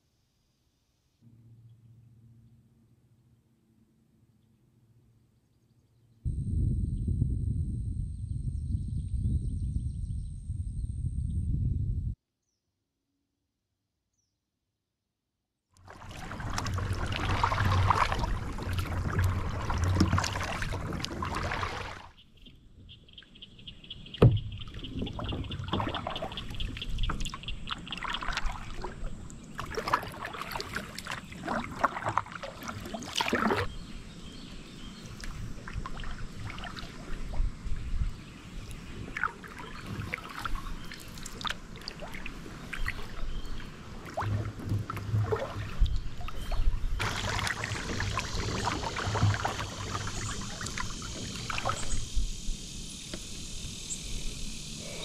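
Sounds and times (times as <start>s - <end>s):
water dripping off paddle: 15.8s - 22.0s, 24.2s - 33.7s, 38.6s - 52.0s
paddle splashing in water: 15.8s - 22.2s, 24.1s - 52.1s.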